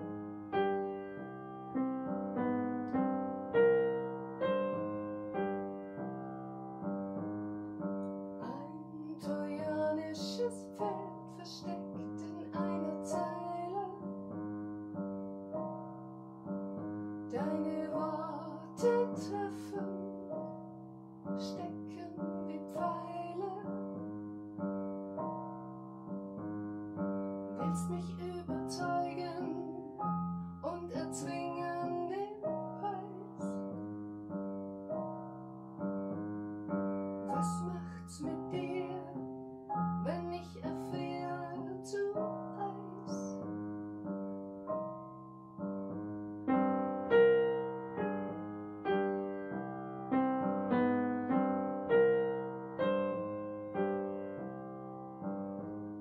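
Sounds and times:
piano playing chords: 0.0s - 56.0s
woman singing a ballad: 8.4s - 14.1s, 17.3s - 20.2s, 21.4s - 23.8s, 27.6s - 30.0s, 30.6s - 33.7s, 37.3s - 39.2s, 40.0s - 43.4s.

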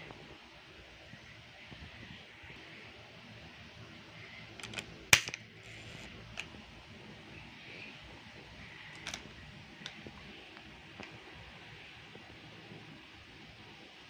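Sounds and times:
plastic cup clicks: 4.6s - 5.4s, 9.0s - 9.2s.

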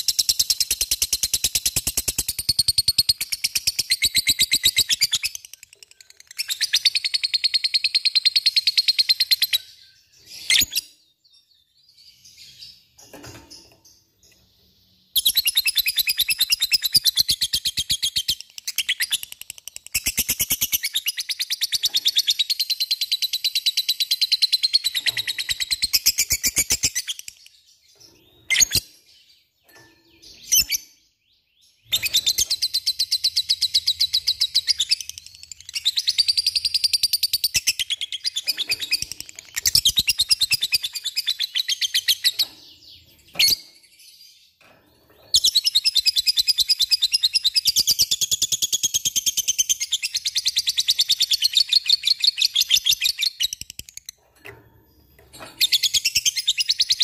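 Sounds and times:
sharp bird chips: 0.0s - 9.5s, 15.2s - 28.9s, 31.8s - 43.8s, 45.2s - 57.0s.

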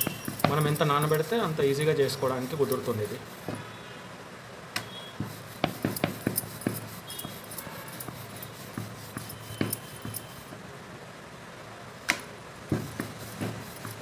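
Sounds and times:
rolling pin rolling dough: 0.0s - 3.6s, 5.2s - 10.6s, 12.7s - 14.0s
wood knocking on wood: 5.2s - 7.5s, 12.7s - 14.0s.

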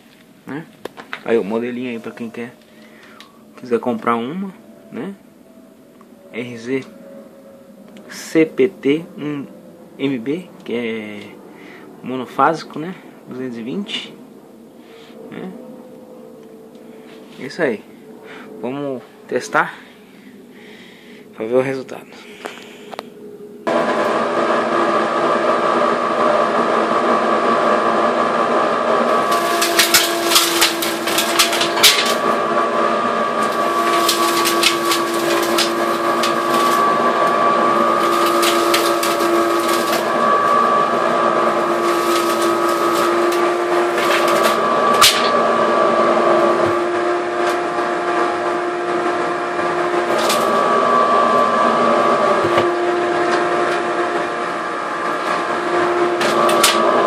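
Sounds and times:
dust collector whining: 0.0s - 57.0s
chips rattling up a hose: 29.2s - 32.3s, 33.4s - 36.9s, 37.8s - 40.1s, 41.6s - 45.3s, 50.1s - 50.6s.

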